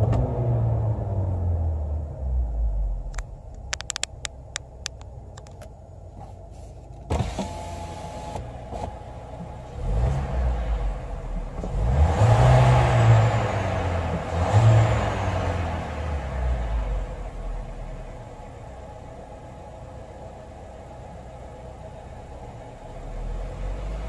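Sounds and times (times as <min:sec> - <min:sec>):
car engine revving: 0:09.7 - 0:18.0.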